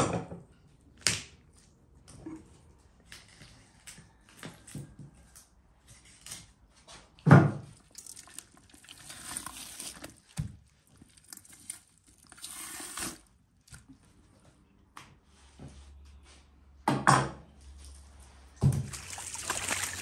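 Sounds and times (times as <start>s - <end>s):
wet squelching and tearing meat: 7.8s - 13.8s.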